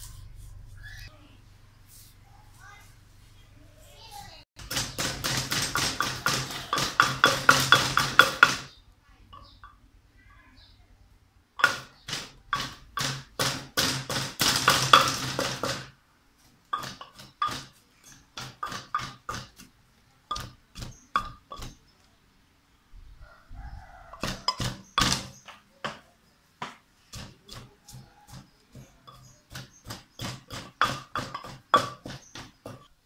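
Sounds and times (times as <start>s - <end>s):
wooden pestle pounding in mortar: 4.6s - 8.7s, 11.6s - 15.9s, 16.7s - 19.7s, 20.3s - 21.8s, 24.2s - 32.9s.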